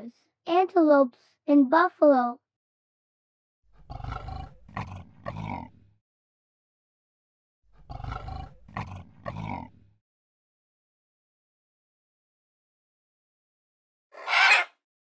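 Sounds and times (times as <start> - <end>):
lion roaring: 3.7 - 5.9, 7.7 - 10.0.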